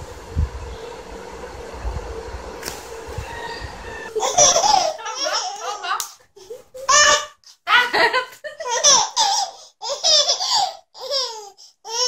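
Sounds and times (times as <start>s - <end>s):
baby laughing: 4.1s - 12.0s.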